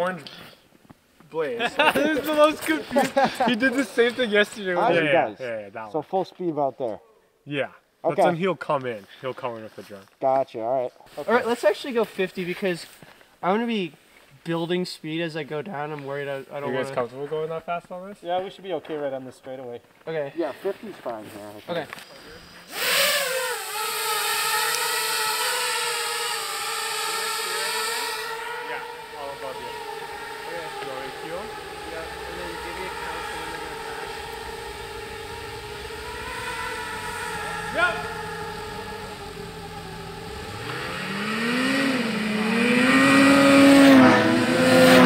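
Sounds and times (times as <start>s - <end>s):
snowmobiles accelerating: 1.4s - 5.2s, 21.3s - 45.0s
drone propeller whine: 22.2s - 45.0s.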